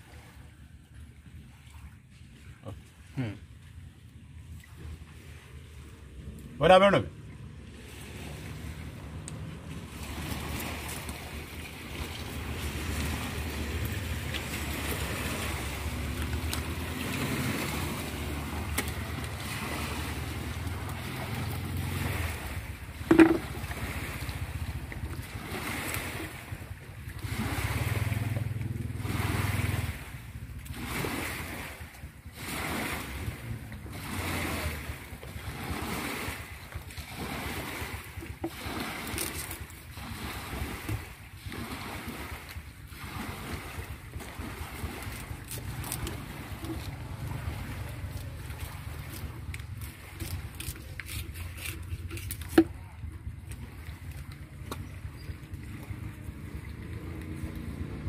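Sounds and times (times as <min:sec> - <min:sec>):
boat engine droning: 0:00.0 - 0:58.0
harbour water wash: 0:00.0 - 0:58.0.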